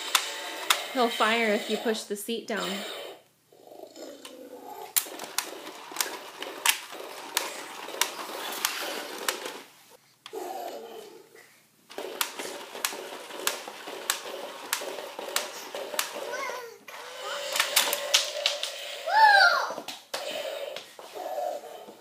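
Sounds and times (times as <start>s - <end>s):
toy geared motor clicking: 5.0s - 9.6s, 11.9s - 19.2s.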